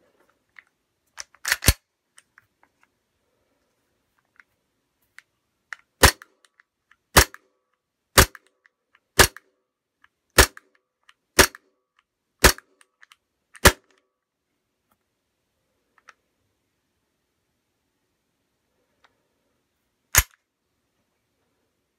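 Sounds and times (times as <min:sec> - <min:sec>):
airsoft pistol shots: 0:09.2 - 0:09.4, 0:11.4 - 0:11.6.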